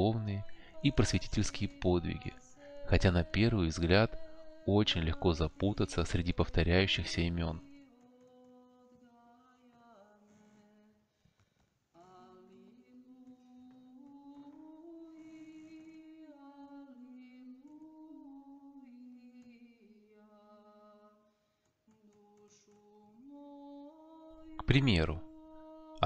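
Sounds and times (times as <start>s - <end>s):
faint vocal chant: 0.0s - 11.1s, 12.0s - 26.0s.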